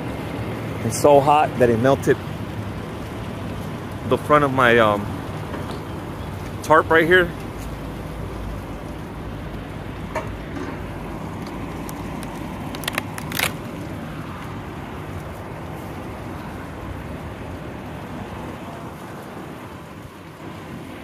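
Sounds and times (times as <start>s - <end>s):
low outdoor background noise: 0.0s - 21.0s
sharp clicks: 11.4s - 13.6s.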